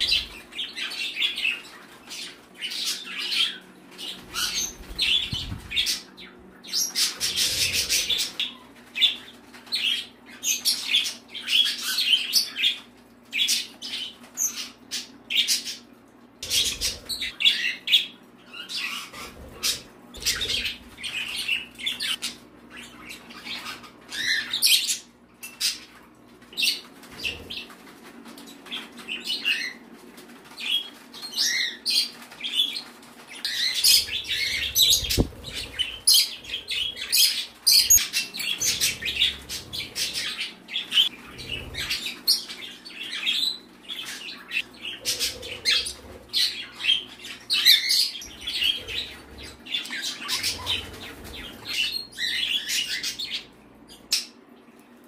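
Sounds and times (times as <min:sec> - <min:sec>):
steady low hum: 0:00.0 - 0:10.4, 0:33.0 - 0:47.5
birds chirping and squawking: 0:00.0 - 0:55.0
wings flapping: 0:04.2 - 0:06.1.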